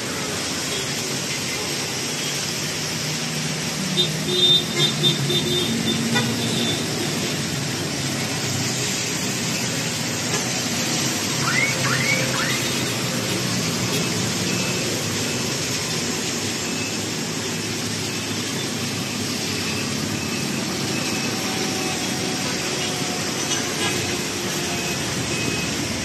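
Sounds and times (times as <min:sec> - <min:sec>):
city traffic noise: 0:00.0 - 0:26.0.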